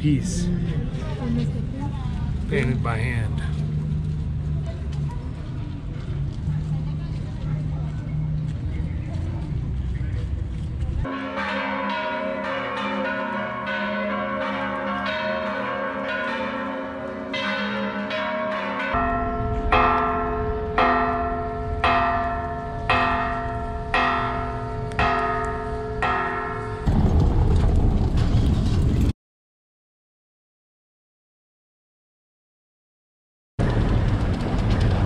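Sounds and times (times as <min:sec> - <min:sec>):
church bells pealing: 0:11.0 - 0:27.0
bell tolling slowly: 0:11.1 - 0:27.0.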